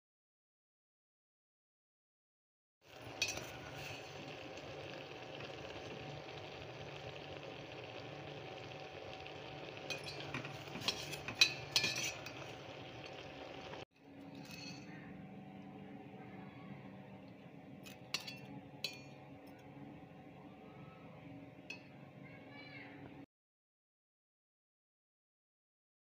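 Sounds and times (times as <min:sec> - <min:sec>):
ladle stirring rice: 0:02.9 - 0:15.1
ladle clinking in steel pot: 0:03.1 - 0:03.9, 0:09.8 - 0:13.2, 0:17.9 - 0:19.2.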